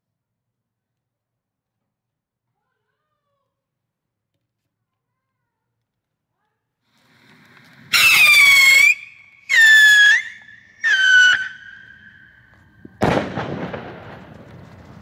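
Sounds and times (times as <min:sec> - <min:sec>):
whistling rocket whistles: 0:07.8 - 0:13.4
firework bang: 0:12.8 - 0:15.0.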